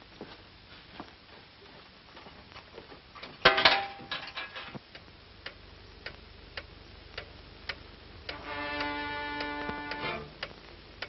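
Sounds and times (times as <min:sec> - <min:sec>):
steady ticking: 0:04.8 - 0:11.0.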